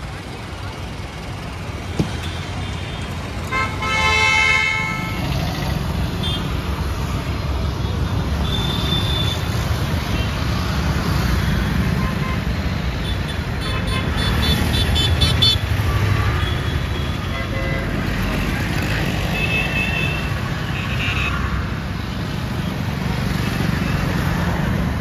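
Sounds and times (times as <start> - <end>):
traffic engine and road rumble: 0.0 - 25.0
vehicle horns tooting: 3.5 - 5.3.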